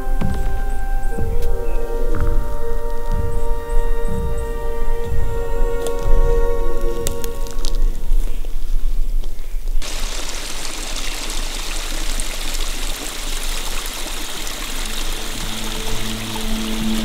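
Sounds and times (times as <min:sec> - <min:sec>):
creek trickling and splashing: 0:09.8 - 0:17.0.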